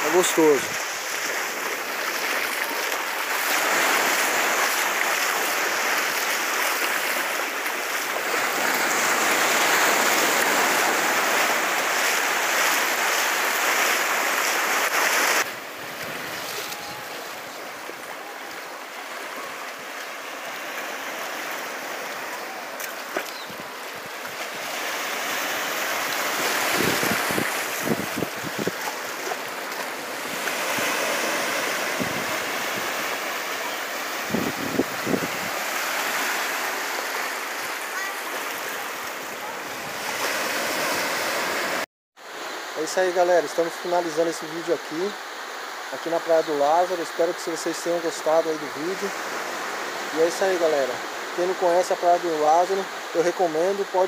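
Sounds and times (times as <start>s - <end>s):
small waves on sandy beach: 0.0s - 54.0s
wind buffeting microphone: 26.5s - 28.9s, 34.2s - 35.7s.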